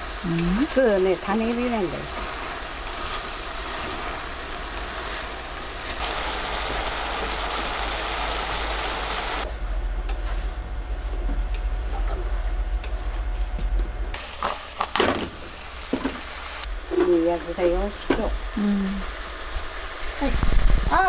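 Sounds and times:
food sizzling in a pot: 0.0s - 9.5s, 14.1s - 21.0s
low steady rumble: 7.0s - 14.2s.

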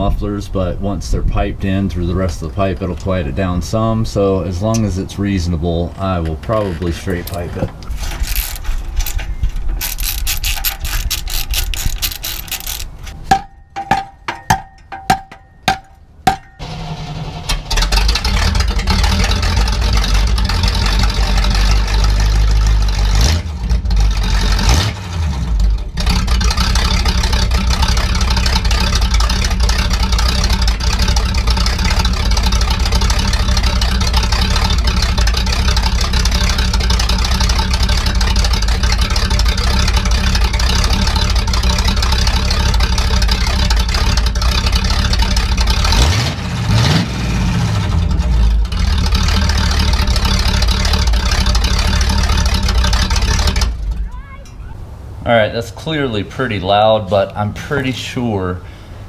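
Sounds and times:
sharp clicks: 6.2s - 13.2s
socket ratchet clicking: 7.2s - 13.2s
loud car engine running: 16.2s - 54.1s.

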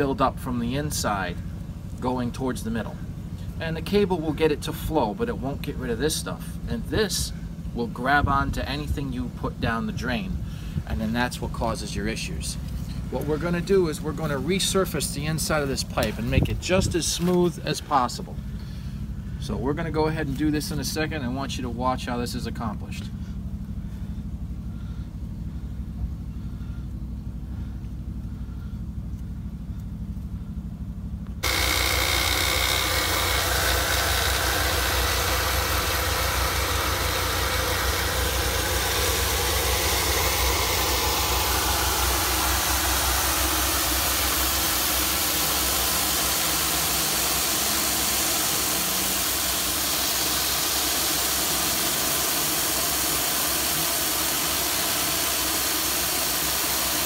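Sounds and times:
water jet hissing: 31.4s - 57.0s
water jetter engine running: 31.4s - 57.0s.

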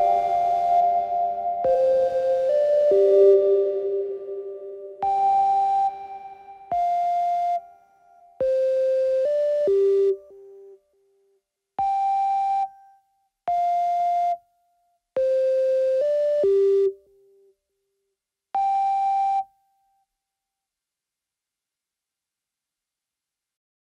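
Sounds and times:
analog synthesizer notes: 0.0s - 7.6s.

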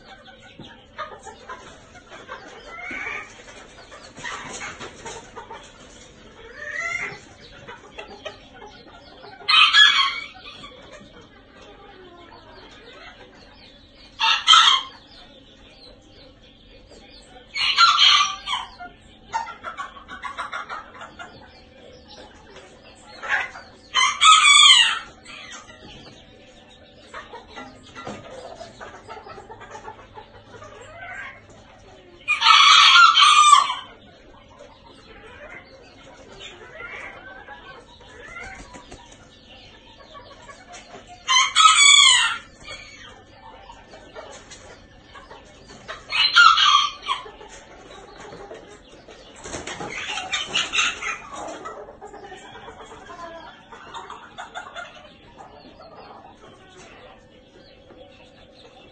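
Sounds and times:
rapid clucking: 0.0s - 58.9s
soft chicken calls: 0.0s - 58.9s
cockerel crowing: 41.3s - 42.5s.

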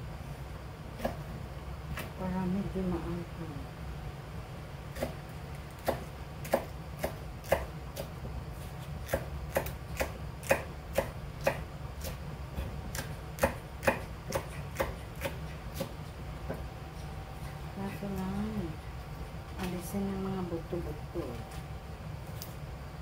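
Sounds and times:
steady low hum: 0.0s - 23.0s
knife chopping on cutting board: 4.9s - 5.2s, 5.8s - 16.6s.

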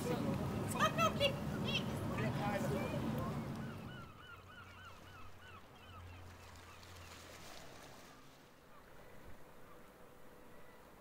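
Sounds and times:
bird calling: 0.0s - 7.2s.

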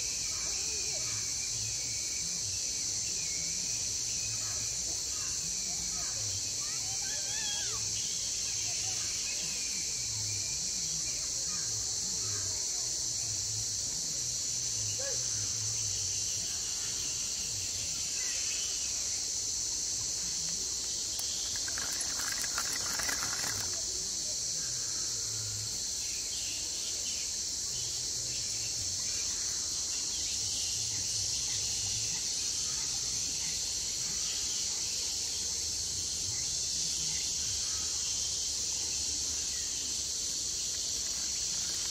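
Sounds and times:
insect chorus drone: 0.0s - 41.9s
rapid clicking: 21.2s - 23.8s.

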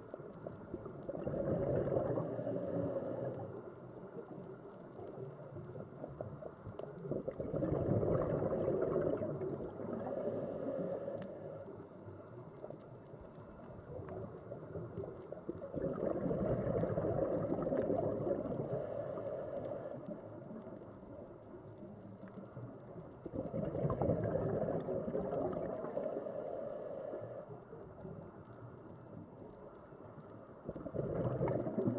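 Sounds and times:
bubbling exhalations: 1.1s - 3.4s, 7.1s - 11.0s, 15.6s - 19.2s, 23.2s - 26.2s, 30.7s - 31.9s
diver breathing through regulator: 1.4s - 3.7s, 8.4s - 11.8s, 18.3s - 20.4s, 25.6s - 27.5s.

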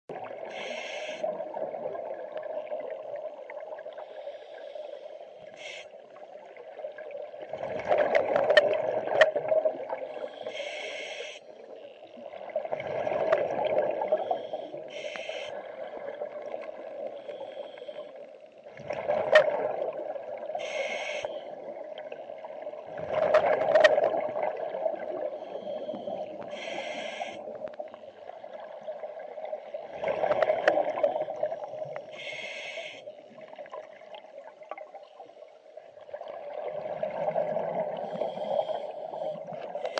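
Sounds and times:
exhaled bubbles gurgling: 0.1s - 4.3s, 5.6s - 10.5s, 11.6s - 17.4s, 18.6s - 32.3s, 33.1s - 39.9s
regulator inhalation hiss: 0.5s - 1.3s, 4.0s - 6.0s, 10.1s - 11.5s, 14.1s - 15.6s, 17.2s - 18.2s, 20.6s - 21.6s, 25.5s - 27.5s, 32.1s - 33.2s, 38.0s - 39.9s.

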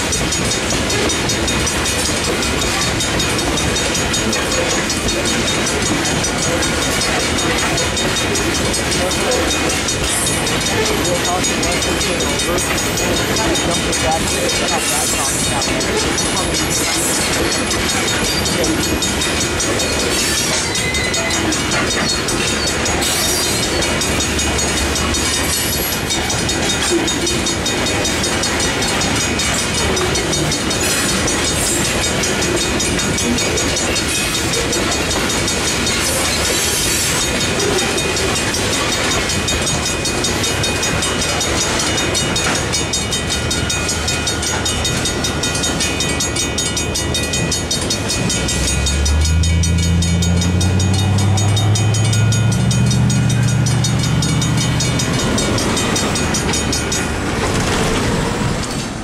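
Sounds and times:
crossing bell ringing: 0.0s - 59.0s
train wheels clattering: 0.0s - 59.0s
truck diesel engine accelerating: 48.2s - 58.2s.

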